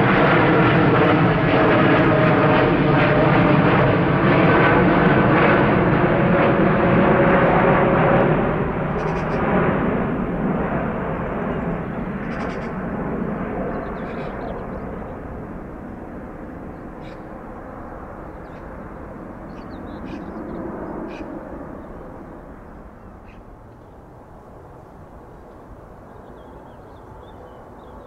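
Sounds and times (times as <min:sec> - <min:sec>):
low jet engine noise: 0:00.0 - 0:28.0
birds chirping: 0:09.0 - 0:09.5, 0:11.5 - 0:12.8, 0:13.6 - 0:15.3, 0:16.6 - 0:24.0, 0:25.4 - 0:28.0.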